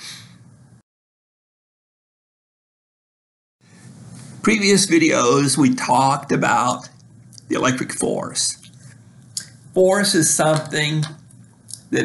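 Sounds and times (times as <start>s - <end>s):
faint room hiss: 3.6s - 12.0s.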